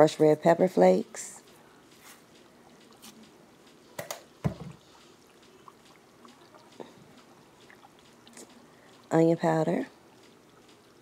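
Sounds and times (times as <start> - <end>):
pepper flakes shaken ticking: 4.8 - 11.0.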